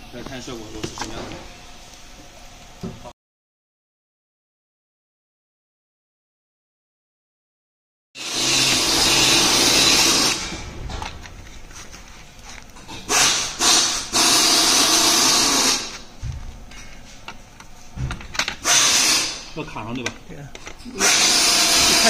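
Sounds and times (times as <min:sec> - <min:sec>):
cordless drill running bolts: 0:08.2 - 0:10.7, 0:13.1 - 0:16.0, 0:18.4 - 0:19.5, 0:20.8 - 0:22.0.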